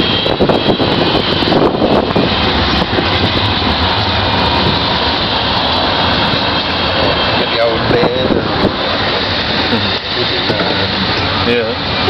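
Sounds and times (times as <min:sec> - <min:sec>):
traffic: 0:00.0 - 0:12.0
wind buffeting microphone: 0:00.0 - 0:12.0.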